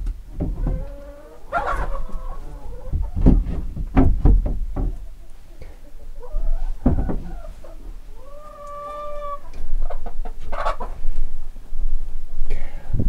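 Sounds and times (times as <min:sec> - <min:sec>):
hens clucking: 0:00.0 - 0:11.6
hen long drawn-out call: 0:00.6 - 0:03.0, 0:05.9 - 0:11.0
knock: 0:03.0 - 0:05.0, 0:06.8 - 0:07.3.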